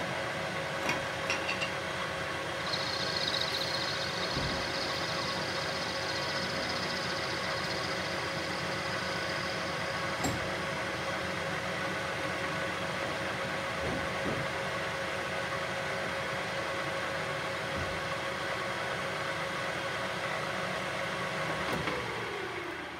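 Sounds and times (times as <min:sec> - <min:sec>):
lathe machine hum: 0:02.0 - 0:13.1.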